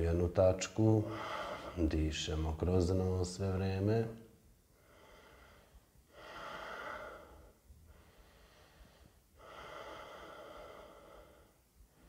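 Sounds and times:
man breathing through nose: 1.1s - 1.8s, 4.8s - 12.0s.

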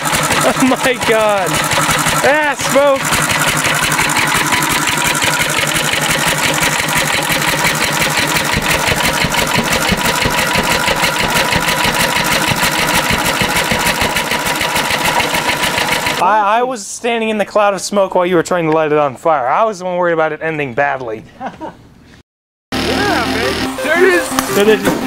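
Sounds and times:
stationary engine running: 0.0s - 16.2s, 22.7s - 25.0s.

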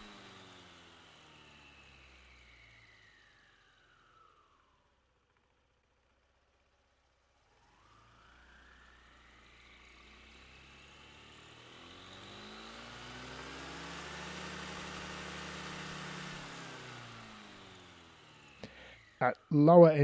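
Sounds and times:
scooter engine revving: 0.0s - 3.4s, 7.7s - 19.2s.

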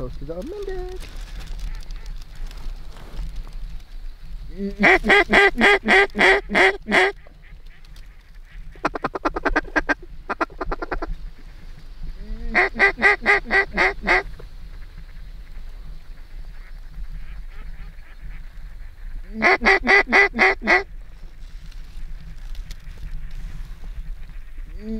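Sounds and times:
chattering clucks: 4.5s - 11.1s
duck quacking: 4.7s - 7.8s, 12.2s - 14.2s, 19.2s - 20.9s.

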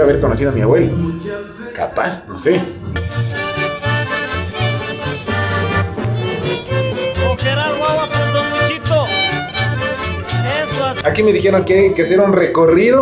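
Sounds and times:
bouncing bass beat: 2.9s - 11.2s
fiddle melody with sliding notes: 3.0s - 12.4s.

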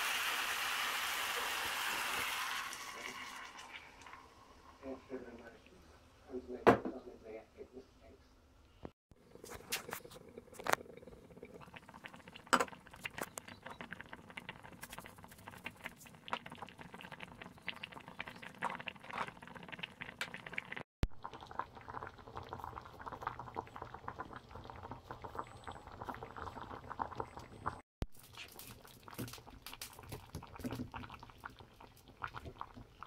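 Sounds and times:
liquid bubbling in a pan: 9.2s - 33.0s.

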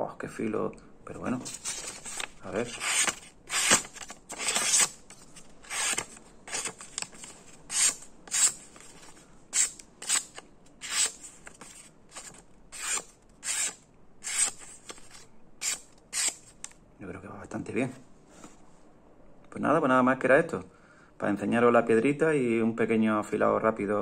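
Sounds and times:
paper rustling: 1.2s - 16.7s
knife slicing paper: 1.4s - 16.5s.

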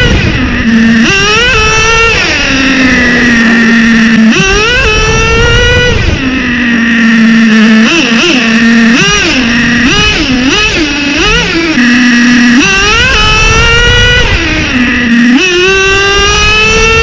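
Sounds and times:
nitro engine revving: 0.0s - 17.0s.

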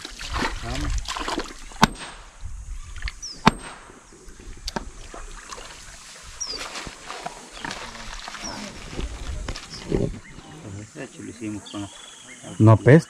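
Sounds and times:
rock being struck: 1.8s - 2.4s, 3.4s - 4.0s.

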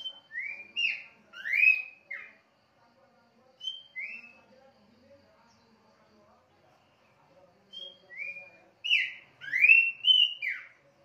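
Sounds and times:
bird singing whistled notes: 0.0s - 2.4s, 3.6s - 4.6s, 7.6s - 10.8s.

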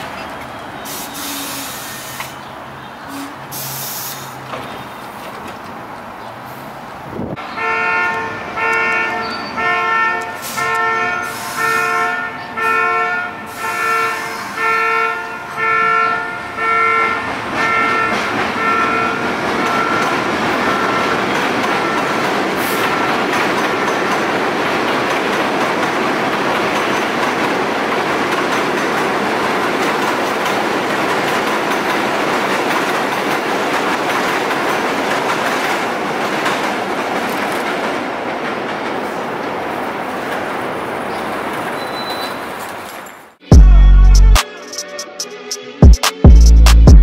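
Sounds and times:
train horn: 0.9s - 2.2s, 7.4s - 21.1s
train wheels rumbling on rails: 17.2s - 43.1s.

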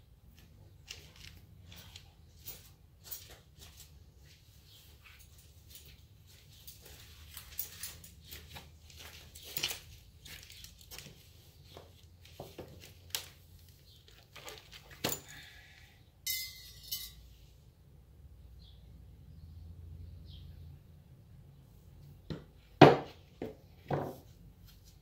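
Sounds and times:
parts and packaging handled: 0.3s - 15.8s.

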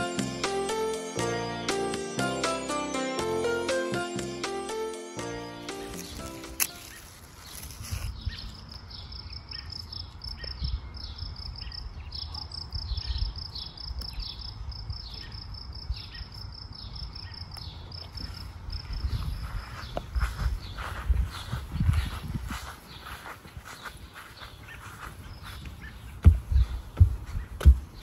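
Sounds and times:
lettuce leaves rustling: 5.7s - 8.8s
insect chirping: 5.9s - 20.2s.

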